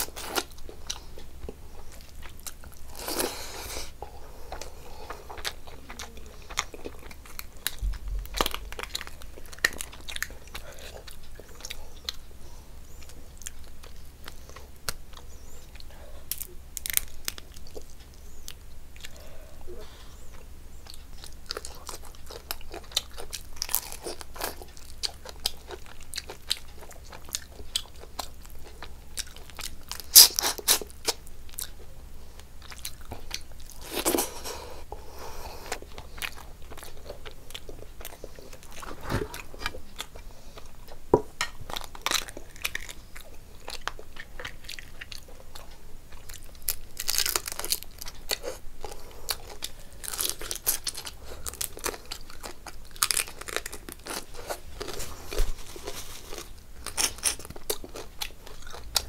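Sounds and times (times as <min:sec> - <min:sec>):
chewing and crunching crab shell: 0:00.0 - 0:19.3, 0:19.9 - 0:35.0, 0:35.6 - 0:59.0.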